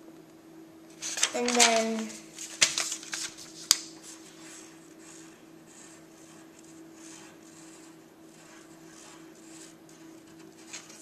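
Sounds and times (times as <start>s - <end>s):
faint steady hum: 0.0s - 11.0s
pencil scratching on paper: 4.0s - 11.0s.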